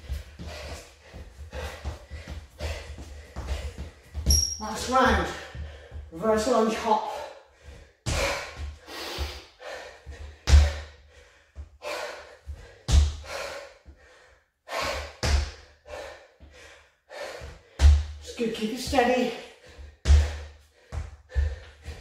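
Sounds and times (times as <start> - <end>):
feet thumping on wooden floor: 0.0 - 6.2, 10.1 - 11.0, 12.5 - 13.4, 19.8 - 22.0
hard breathing: 0.0 - 18.2, 18.9 - 22.0.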